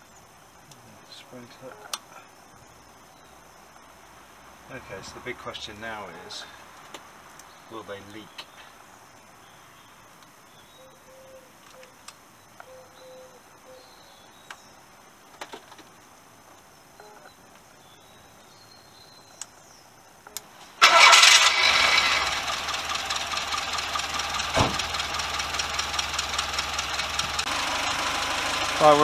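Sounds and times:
faint clicks: 10.1 - 10.4, 19.3 - 19.6
car engine starting and idling: 20.4 - 29.0.

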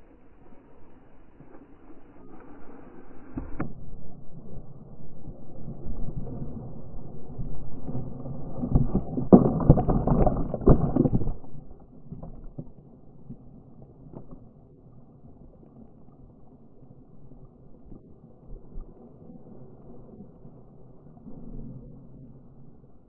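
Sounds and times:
water splashing over kayak: 2.7 - 21.0.

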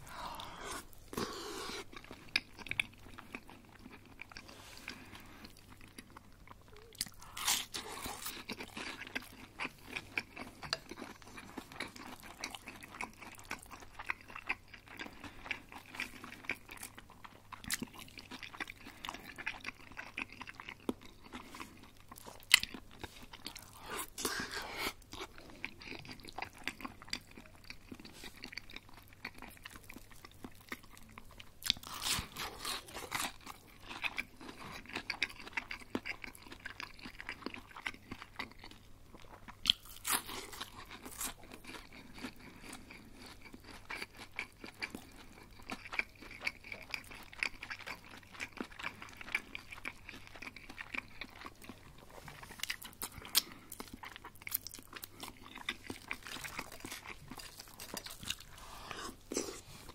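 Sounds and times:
chewing crispy food: 0.0 - 59.9.

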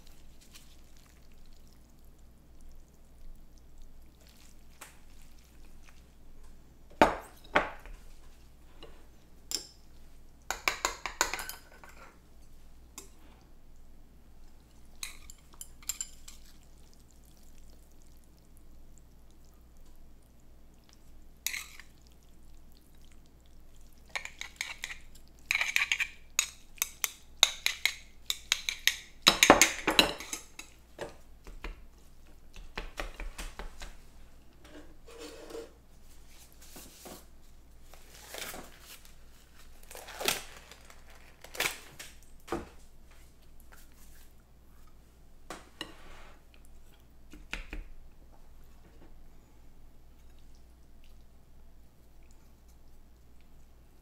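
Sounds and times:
utensil clinking against a bowl: 24.1 - 30.8.

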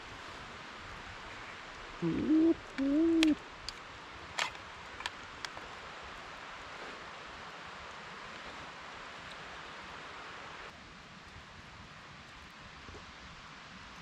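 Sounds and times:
owl hooting: 2.0 - 3.4
faint clicks: 2.7 - 3.8, 4.4 - 5.7.

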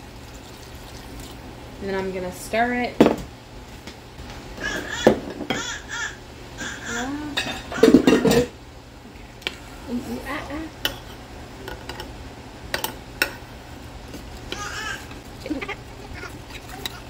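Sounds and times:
young child babbling: 14.5 - 17.0
metal spoon stirring in a crock: 15.0 - 17.0.

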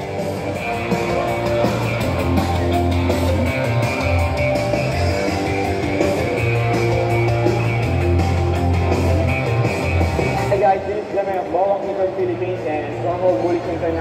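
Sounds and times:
sustained bass line: 0.0 - 10.6
rock music: 0.0 - 13.9
guitar: 0.0 - 14.0.

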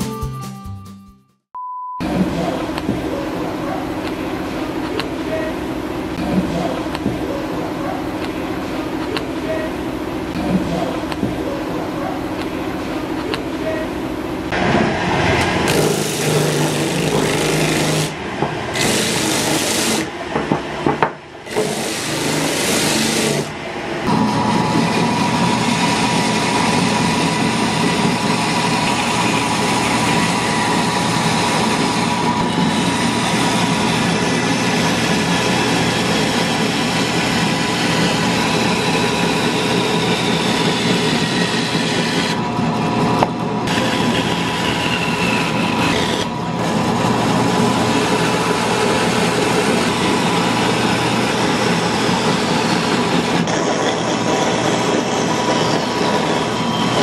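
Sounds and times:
band saw cutting wood: 15.2 - 20.2, 21.4 - 42.5, 43.6 - 57.0.

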